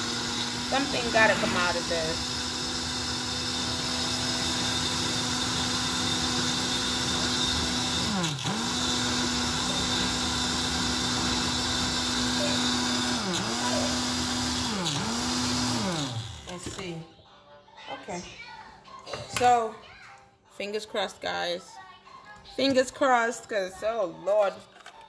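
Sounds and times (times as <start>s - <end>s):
blender motor running: 0.0s - 16.8s.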